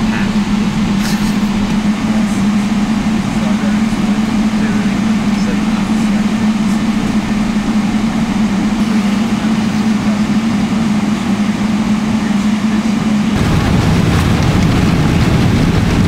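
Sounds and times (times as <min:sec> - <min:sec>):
aircraft cabin hum: 0:00.0 - 0:16.0
jet engines spooling up: 0:00.0 - 0:16.0.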